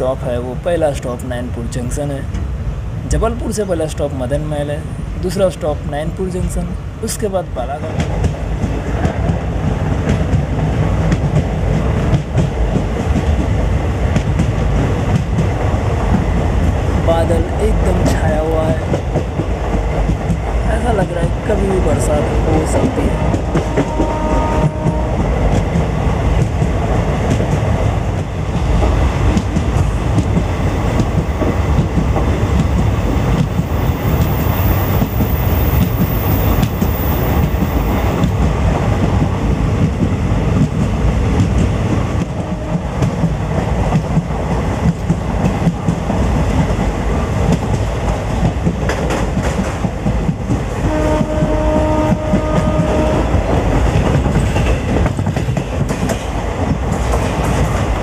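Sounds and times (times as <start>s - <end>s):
train wheels clickety-clack: 7.6s - 58.0s
train horn: 23.3s - 25.3s, 42.4s - 43.0s, 50.8s - 53.4s.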